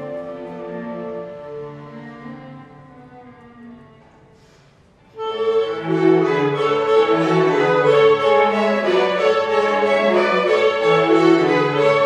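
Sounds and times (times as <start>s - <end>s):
orchestra playing: 0.0s - 12.0s
bowed strings: 5.1s - 12.0s.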